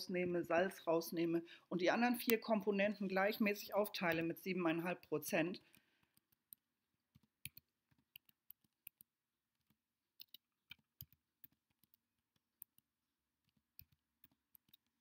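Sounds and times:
keyboard typing and clicks: 5.7 - 15.0.

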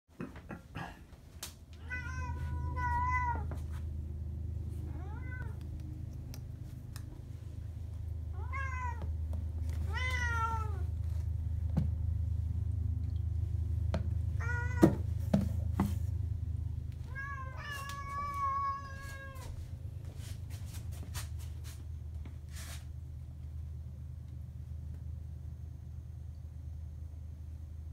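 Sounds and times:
low steady hum: 0.2 - 27.9
cat meowing: 1.8 - 3.5, 4.9 - 5.6, 8.3 - 9.1, 9.8 - 10.9, 14.4 - 15.0, 17.0 - 19.6.

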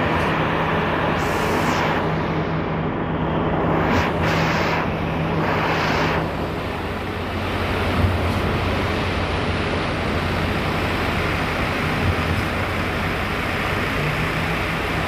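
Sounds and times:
engine running: 0.0 - 15.0
loud rushing noise: 0.0 - 15.0
hissing rushes: 1.0 - 2.5, 3.5 - 7.9.

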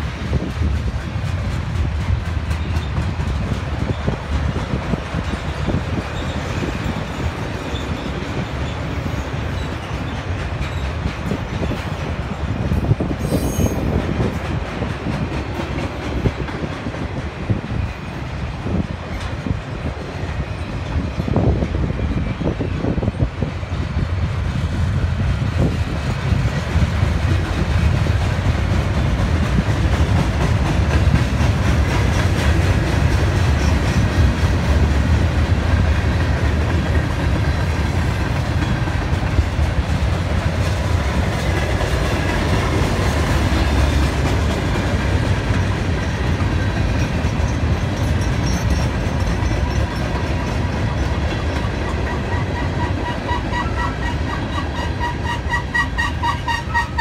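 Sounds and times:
train wheels rumbling on rails: 0.0 - 57.0
wheels clickety-clack: 0.0 - 57.0.

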